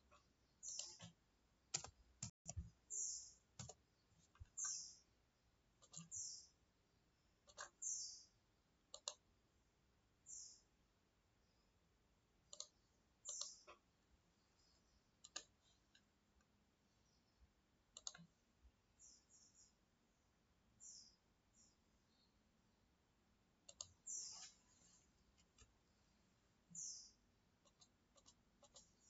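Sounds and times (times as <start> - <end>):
computer mouse clicks: 0.6 - 1.2, 1.8 - 2.7, 5.8 - 6.3, 7.5 - 7.9, 8.9 - 9.2, 12.5 - 13.8, 15.2 - 16.1, 17.9 - 18.3, 23.6 - 24.5, 27.6 - 29.0.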